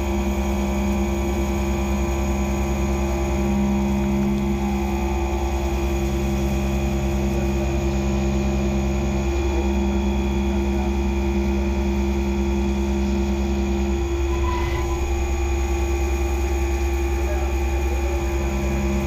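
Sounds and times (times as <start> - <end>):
milling machine humming and whining: 0.0 - 19.0
metal cutting: 13.6 - 19.0.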